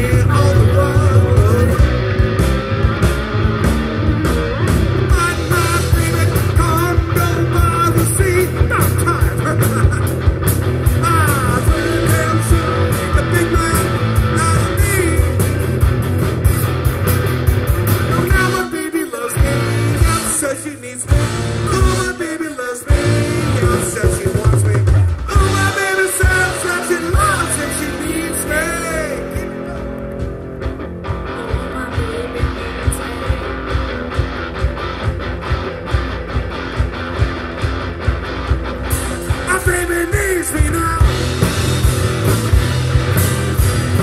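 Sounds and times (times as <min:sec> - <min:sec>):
bass guitar: 0:00.0 - 0:44.0
distorted electric guitars: 0:00.0 - 0:44.0
drums: 0:00.0 - 0:44.0
woman singing: 0:31.3 - 0:33.7.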